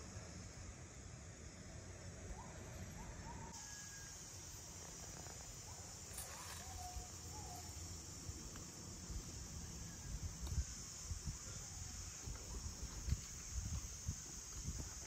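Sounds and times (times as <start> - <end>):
high insect hiss: 0.0 - 15.0
low wind rumble: 8.1 - 15.0.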